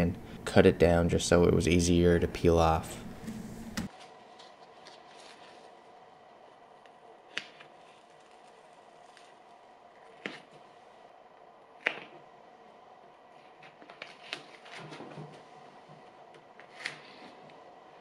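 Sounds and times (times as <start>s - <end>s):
faint room hum: 0.0s - 18.0s
tape crackling and rubbing: 3.9s - 6.0s, 6.8s - 10.7s.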